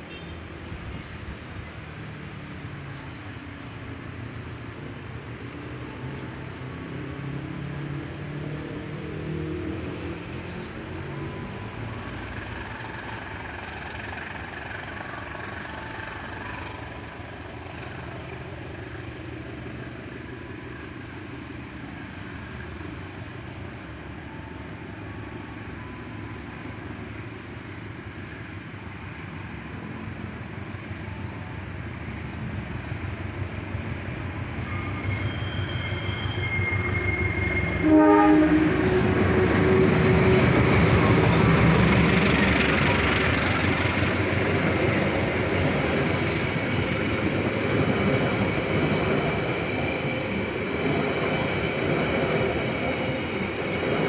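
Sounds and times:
diesel locomotive rumble: 3.6 - 54.0
train wheels passing: 5.2 - 54.0
train horn blasts: 34.6 - 41.0.

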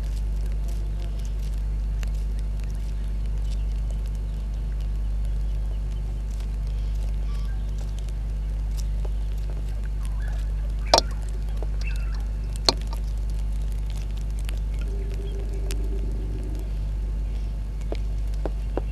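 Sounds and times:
low electrical hum: 0.0 - 18.9
sharp clicks: 2.3 - 18.9
faint short bird calls: 6.7 - 7.8, 10.1 - 13.0.

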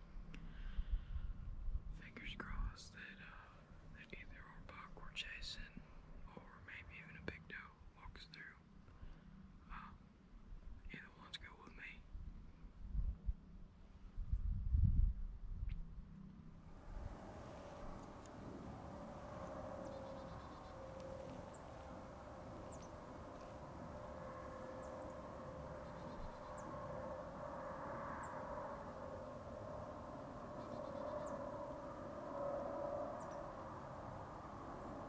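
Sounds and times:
distant birds calling: 16.8 - 35.0.

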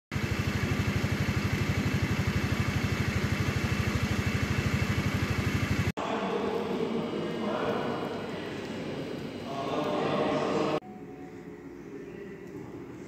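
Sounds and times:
engine idling: 0.1 - 6.0.

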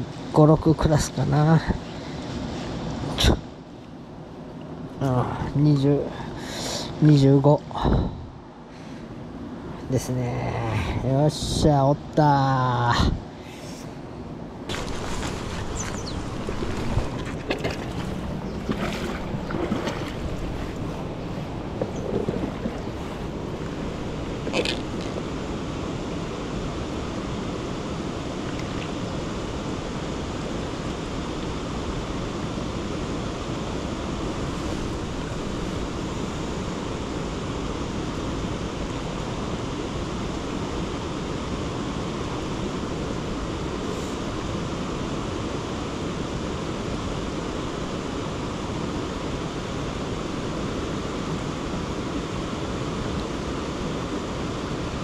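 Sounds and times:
river water flowing: 13.3 - 55.0.

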